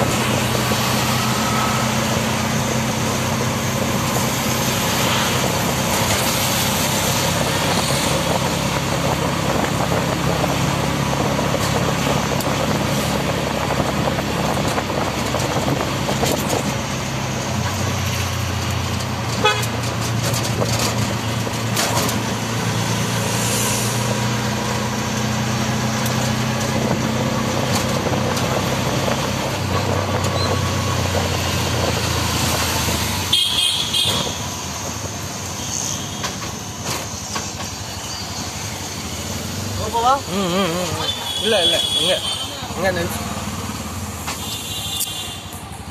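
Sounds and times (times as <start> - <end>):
road and traffic noise: 0.0 - 45.9
horns tooting: 19.2 - 20.0, 33.2 - 34.6, 39.9 - 43.3, 44.2 - 45.7.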